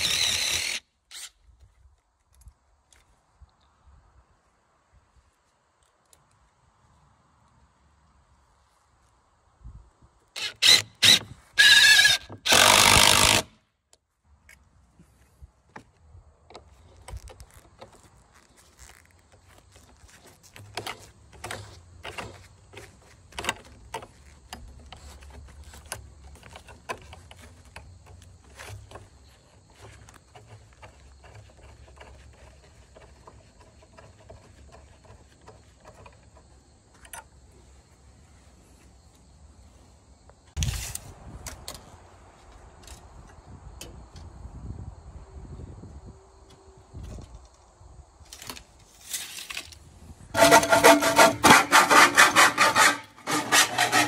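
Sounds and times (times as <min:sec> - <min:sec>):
power drill drilling into wood: 0:00.0 - 0:01.3, 0:10.4 - 0:13.5.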